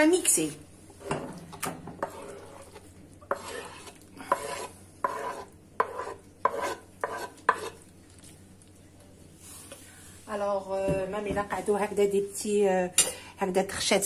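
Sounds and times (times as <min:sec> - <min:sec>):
scraping on wooden board: 0:02.0 - 0:07.8.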